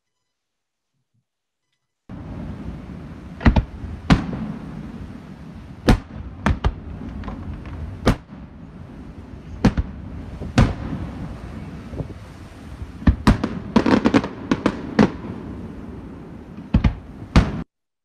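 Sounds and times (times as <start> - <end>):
fireworks bangs: 2.1 - 17.7.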